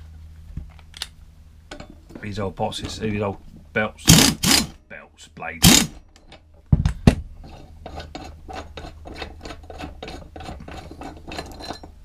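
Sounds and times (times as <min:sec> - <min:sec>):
air impact wrench bursts: 0:04.0 - 0:04.8, 0:05.6 - 0:06.0
metallic scraping and clicking: 0:07.4 - 0:12.0.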